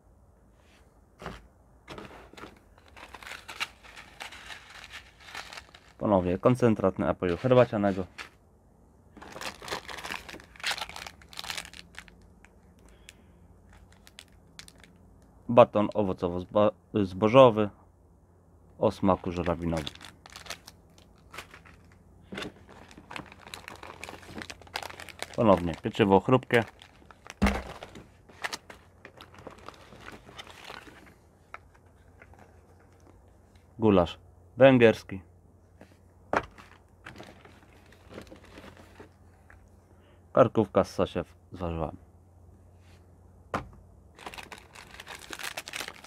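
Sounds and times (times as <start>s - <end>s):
food packets crinkling: 2.7s - 6.0s, 9.2s - 15.0s, 19.1s - 33.2s, 36.5s - 39.7s, 44.2s - 46.0s.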